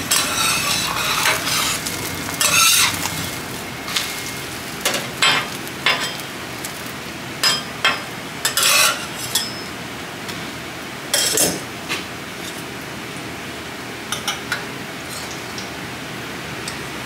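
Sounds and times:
metal spatulas scraping on griddle: 0.0 - 7.6, 8.4 - 9.6
egg sizzling: 0.0 - 7.8.

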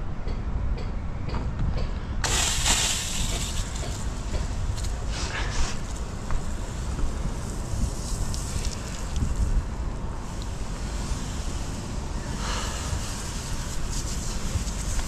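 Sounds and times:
wind buffeting microphone: 1.2 - 15.0
hose spray hissing: 2.2 - 4.1.

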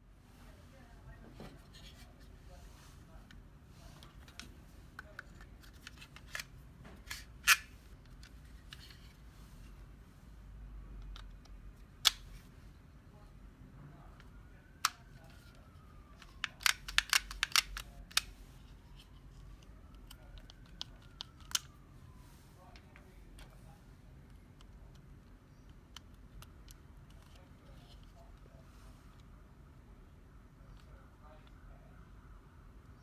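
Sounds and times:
plastic applicator gun clicks: 16.2 - 18.3
cartridge snapping into gun: 16.4 - 18.2.

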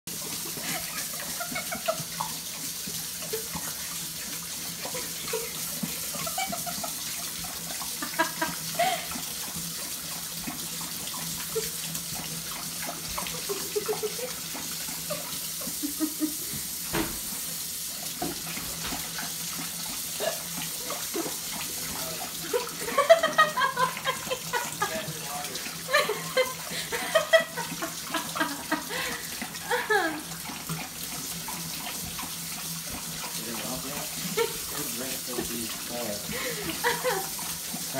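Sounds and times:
dog lapping water: 0.1 - 37.9
faucet running into a metal sink: 0.1 - 37.9.

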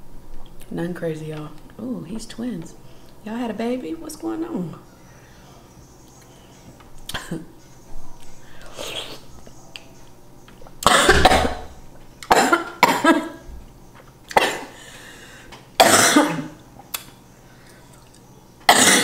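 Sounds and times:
woman coughing: 7.1 - 7.5, 10.8 - 11.7, 12.3 - 13.4, 14.3 - 14.8, 15.8 - 16.6, 18.7 - 19.0.

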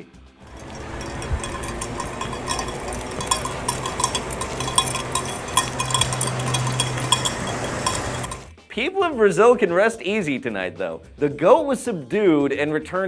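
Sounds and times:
low steady hum: 0.5 - 8.5
small bell jingling: 0.5 - 8.5.

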